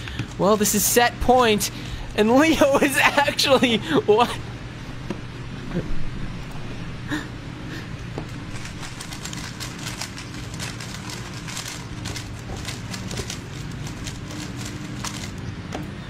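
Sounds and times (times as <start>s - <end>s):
low hum: 3.8s - 16.0s.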